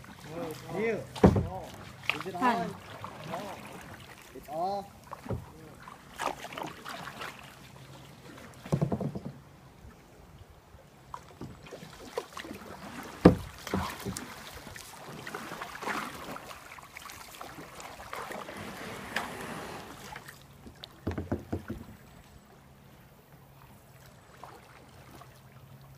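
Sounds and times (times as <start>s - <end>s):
paddle splashing in water: 0.0s - 25.9s
knocks: 1.2s - 1.5s, 21.0s - 21.9s.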